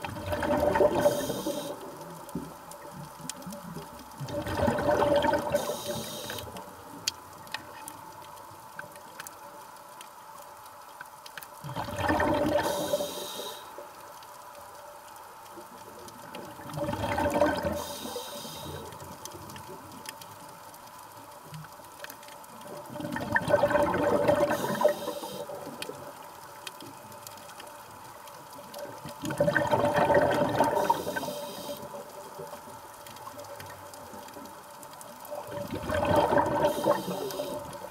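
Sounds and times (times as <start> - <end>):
diver exhaling bubbles underwater: 0.1 - 1.7, 4.2 - 6.4, 11.6 - 13.1, 16.6 - 18.1, 22.9 - 25.4, 29.2 - 31.4, 35.5 - 37.9.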